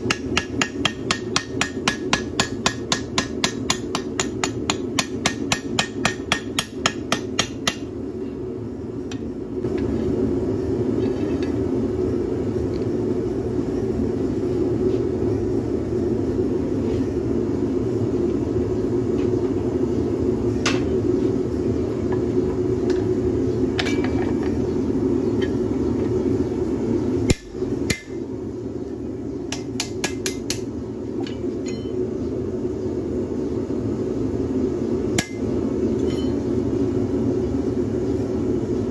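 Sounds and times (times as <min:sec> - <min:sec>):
gas forge roaring: 0:00.0 - 0:38.9
hammer ringing on anvil: 0:31.6 - 0:32.0.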